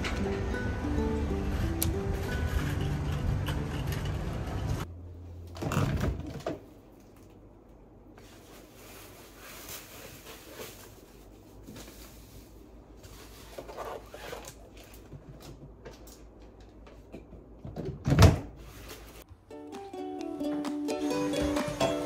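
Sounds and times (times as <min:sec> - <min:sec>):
items clicking on shelves: 0:14.4 - 0:18.2.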